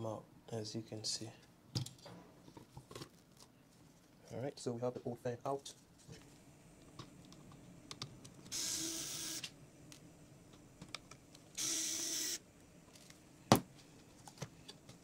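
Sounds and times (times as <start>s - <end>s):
electric screwdriver whirring: 8.5s - 9.5s, 11.6s - 12.4s.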